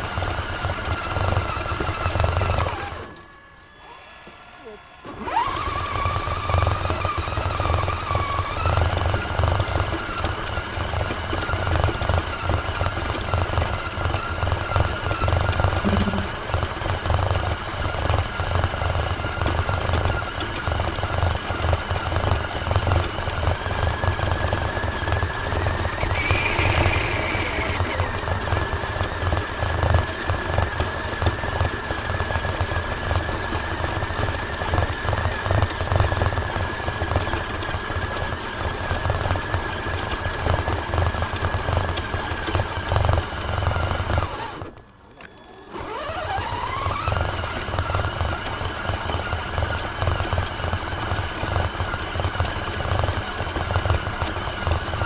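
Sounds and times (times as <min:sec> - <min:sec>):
electric motor whining: 0:00.0 - 0:55.0.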